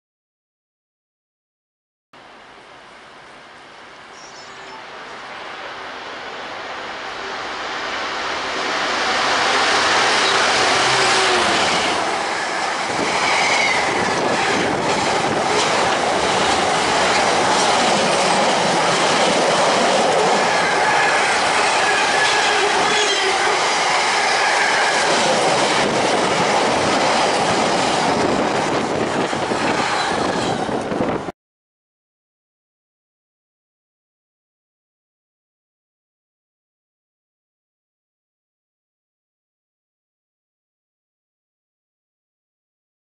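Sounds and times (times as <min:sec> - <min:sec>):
train rumble: 0:04.5 - 0:31.3
high wheel squeals: 0:10.0 - 0:14.3.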